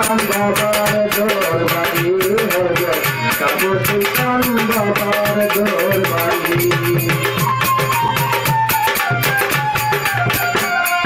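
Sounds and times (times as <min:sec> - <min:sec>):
fast steady drum: 0:00.0 - 0:11.0
rattling percussion: 0:00.0 - 0:11.0
winding melody line: 0:02.6 - 0:11.0.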